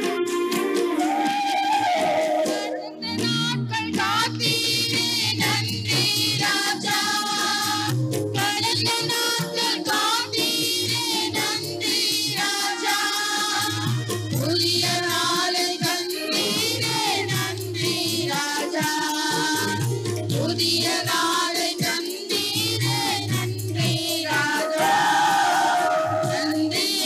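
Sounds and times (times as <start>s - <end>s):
electronic keyboard: 0.0s - 3.1s, 6.9s - 12.2s
women singing together: 1.0s - 27.0s
tabla strokes: 10.9s - 27.0s.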